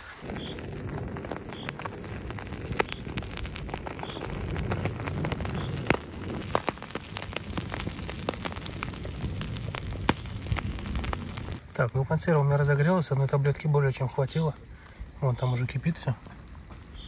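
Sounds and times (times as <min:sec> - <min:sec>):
fuel tablets crackling: 0:00.0 - 0:17.0
wind rumble on microphone: 0:00.1 - 0:11.6.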